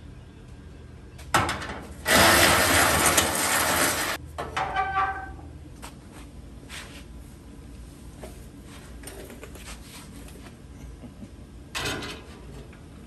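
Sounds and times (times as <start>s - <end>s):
metal scraping: 2.0s - 5.4s.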